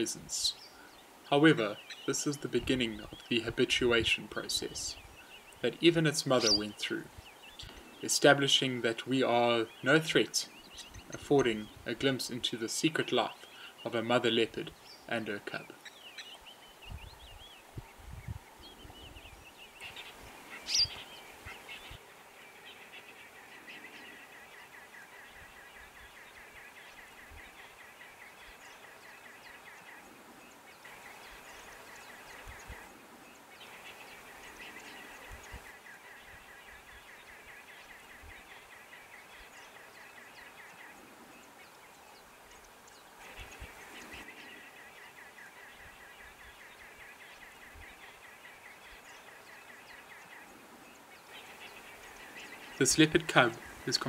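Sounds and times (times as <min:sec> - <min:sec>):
bird trilling: 0:05.2 - 0:06.9, 0:19.8 - 0:22.0
sharp bird call: 0:06.3 - 0:06.8.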